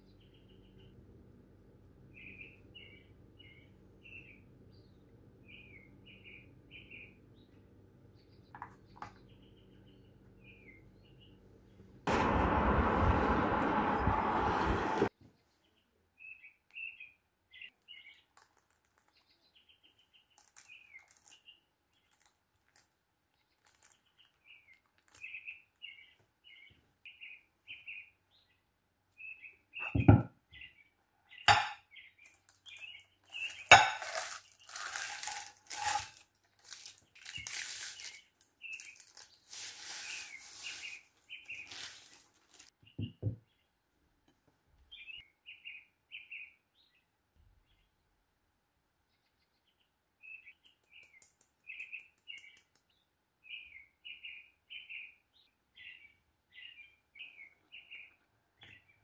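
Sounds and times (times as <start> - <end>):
small birds chirping: 0.0 - 12.0, 15.1 - 43.9, 44.8 - 59.0
dishes rustling and scraping: 33.3 - 36.2.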